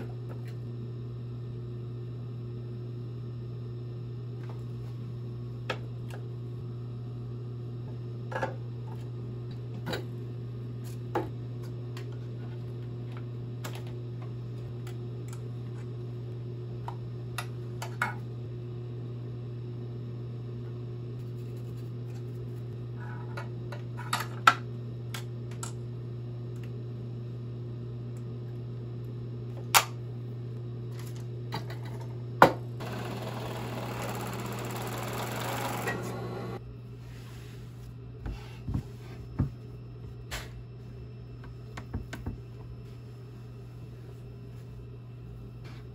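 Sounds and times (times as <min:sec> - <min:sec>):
steady low hum: 0:00.0 - 0:45.9
serger sewing: 0:32.8 - 0:36.6.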